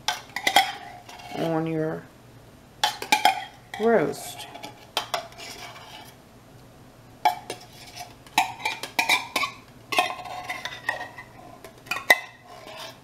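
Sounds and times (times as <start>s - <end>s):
metal spoon clinking and scraping: 0.1s - 1.6s, 2.8s - 6.2s, 7.2s - 13.0s.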